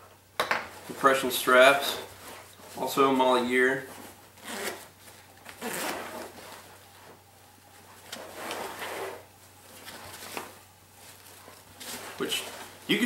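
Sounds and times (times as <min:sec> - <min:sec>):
fabric rustling: 0:00.7 - 0:13.0
zipper on backpack: 0:04.4 - 0:04.9, 0:05.6 - 0:06.5, 0:08.2 - 0:09.3.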